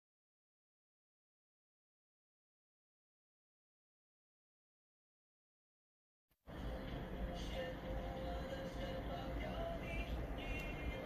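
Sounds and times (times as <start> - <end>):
background music with low rumble: 6.5 - 11.0.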